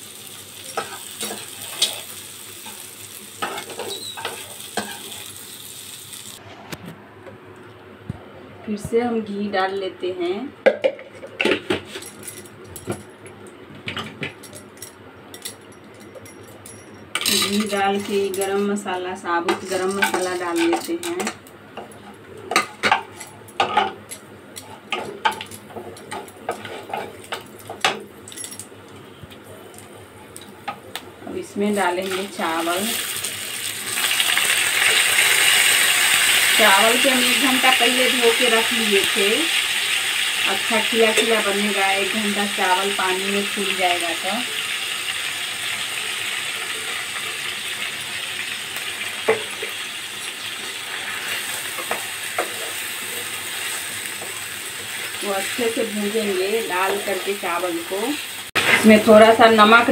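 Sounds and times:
rice sizzling in hot fat: 0.0 - 6.5, 31.7 - 59.6
spatula scraping a pan: 26.5 - 27.3.

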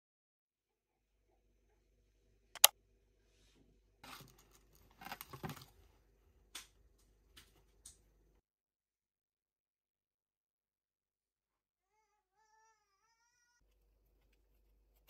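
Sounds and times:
plastic sachets rustling against cardboard: 4.0 - 5.9.

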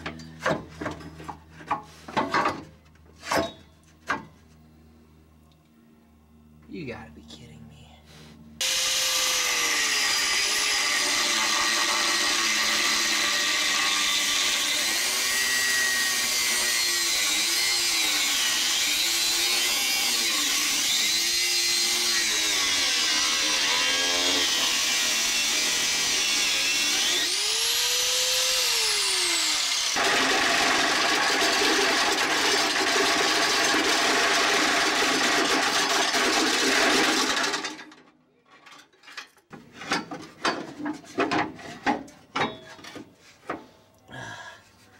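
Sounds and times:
angle grinder cutting metal pipe: 8.6 - 37.8.

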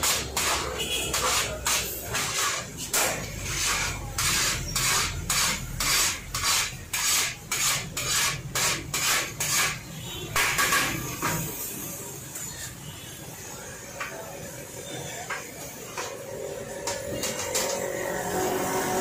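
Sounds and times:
rice scraped from metal pot: 0.0 - 9.9.

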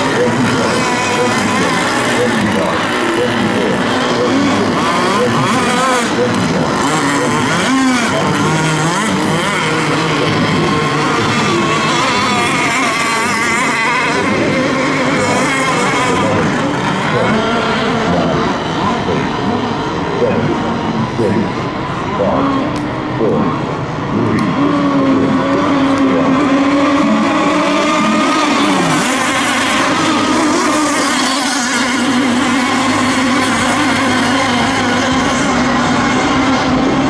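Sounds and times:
racing boat motors revving: 0.0 - 37.0.

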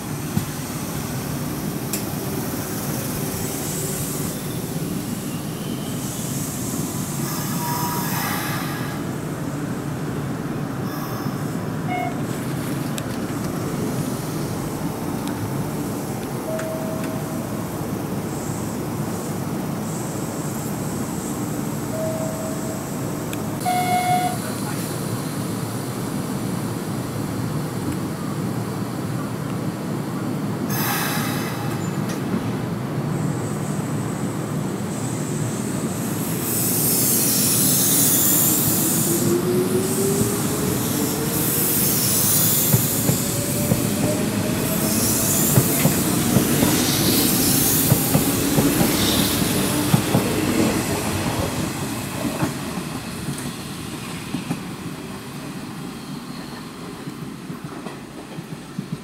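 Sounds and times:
rail-joint clicks: 1.8 - 2.2, 11.9 - 13.7, 16.1 - 17.6, 30.7 - 32.6, 44.8 - 51.6, 56.3 - 59.0.

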